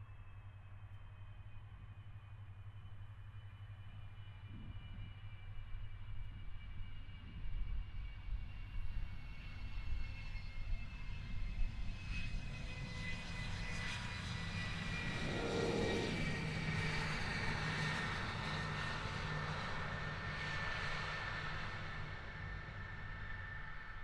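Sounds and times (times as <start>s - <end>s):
jet engines running: 10.7s - 24.0s.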